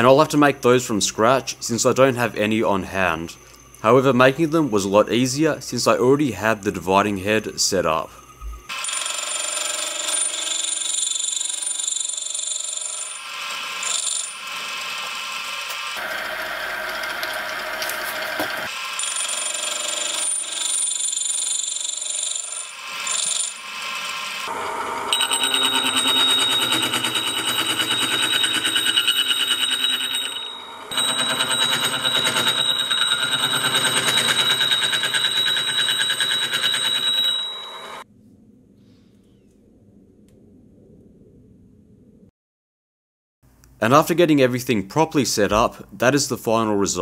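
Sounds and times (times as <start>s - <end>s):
milling machine metallic whine: 0.6s - 9.2s, 12.6s - 20.3s, 22.1s - 38.0s.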